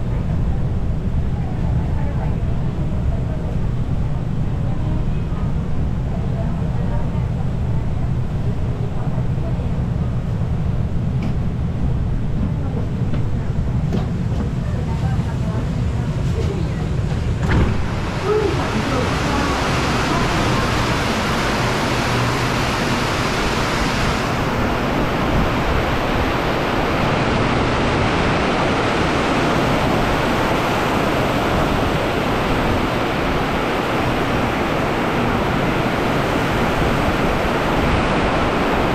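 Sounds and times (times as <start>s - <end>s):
wind on microphone: 0.0s - 38.9s.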